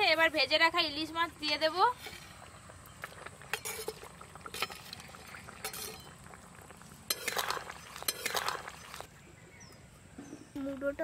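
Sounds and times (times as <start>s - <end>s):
liquid sloshing in wok: 1.3s - 9.2s
metal spatula clinking and scraping: 3.5s - 4.9s, 5.6s - 6.1s, 7.1s - 8.5s.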